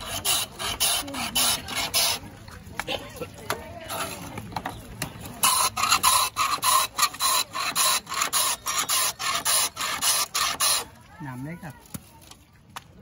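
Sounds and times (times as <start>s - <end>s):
ice scraping over shaving blade: 0.0s - 2.3s, 5.4s - 11.5s.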